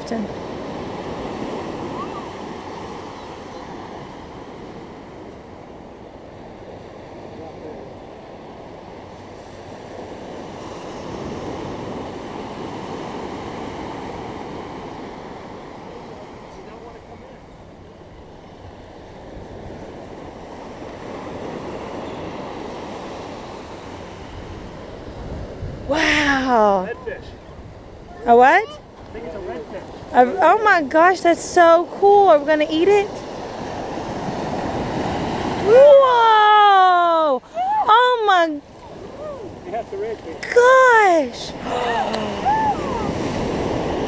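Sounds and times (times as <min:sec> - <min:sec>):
ocean surf breaking: 0:00.0 - 0:44.0
wind on microphone: 0:23.7 - 0:30.2, 0:41.5 - 0:44.0.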